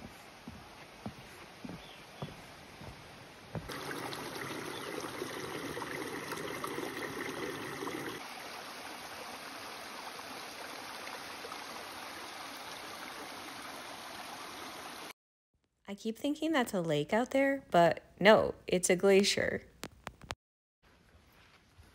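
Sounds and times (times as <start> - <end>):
footsteps on trail: 0.0 - 3.7
creek trickling over rocks: 3.7 - 15.1.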